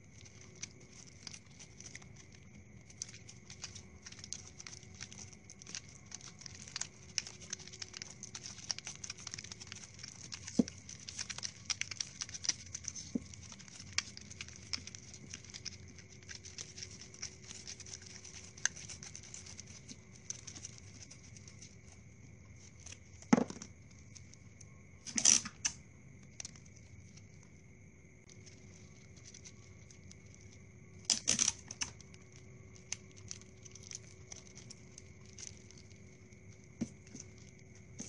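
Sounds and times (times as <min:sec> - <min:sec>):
plastic straws clicking and rustling: 0:00.2 - 0:21.8, 0:25.1 - 0:25.8, 0:31.0 - 0:32.1.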